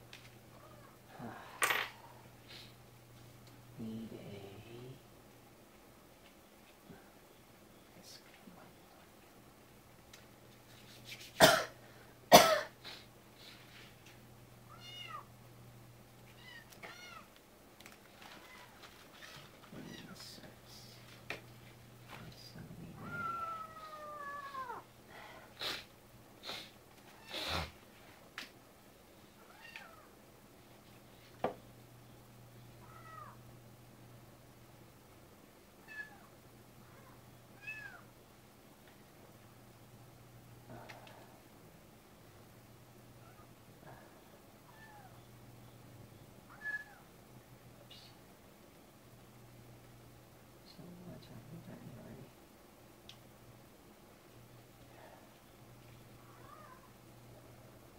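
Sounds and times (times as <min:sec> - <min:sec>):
low steady hum: 0:00.0 - 0:57.9
cat meowing: 0:14.7 - 0:15.3, 0:23.0 - 0:24.8, 0:32.8 - 0:33.4, 0:35.8 - 0:36.3, 0:36.9 - 0:38.0, 0:46.5 - 0:47.0, 0:56.3 - 0:56.9.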